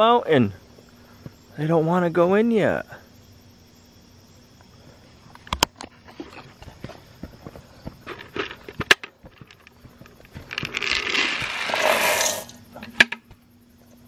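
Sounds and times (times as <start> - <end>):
footsteps on grass: 6.0 - 11.6.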